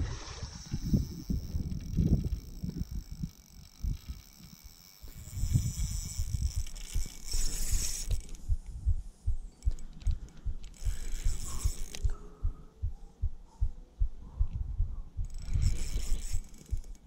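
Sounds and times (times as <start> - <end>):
fishing reel cranking: 0.0 - 8.5, 9.6 - 12.1, 15.2 - 17.0.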